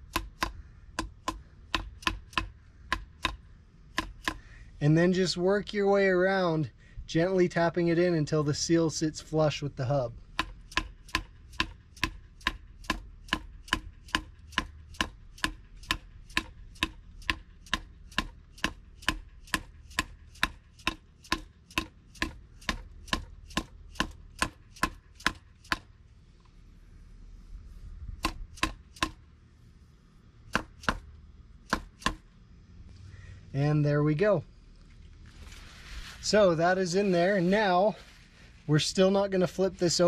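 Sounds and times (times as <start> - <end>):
hammer tapping metal: 0.0 - 4.4, 10.3 - 25.9.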